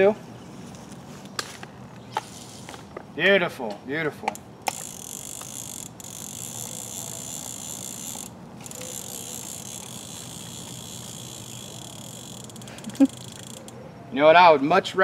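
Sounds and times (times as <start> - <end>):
fishing reel ratcheting whir: 4.4 - 13.8.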